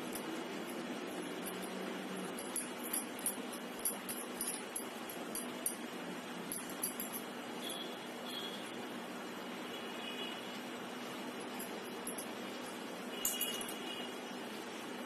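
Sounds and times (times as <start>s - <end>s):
bangles clinking on a wrist: 0.0s - 8.5s, 11.3s - 14.2s.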